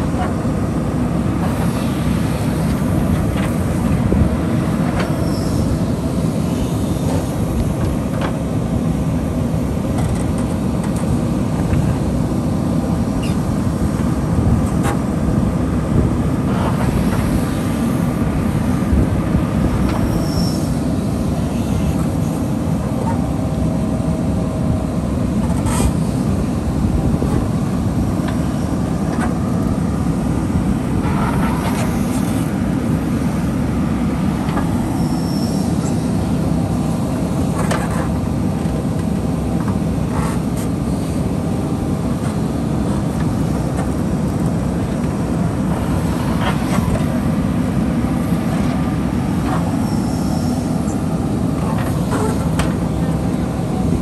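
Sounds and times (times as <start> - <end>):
diesel engine under load: 0.0 - 54.0.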